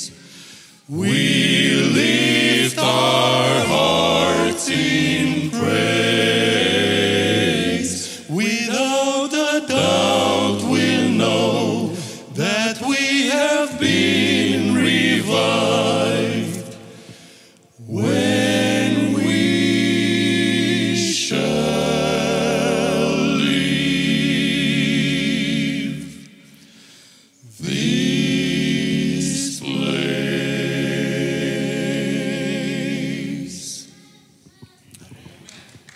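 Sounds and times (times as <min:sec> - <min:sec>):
male vocal quartet singing: 0:00.0 - 0:33.9.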